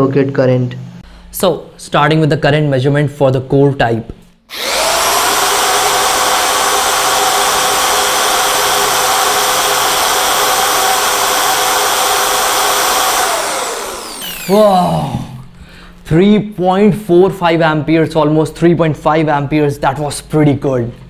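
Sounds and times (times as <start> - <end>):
electric drill whining: 4.5 - 15.4.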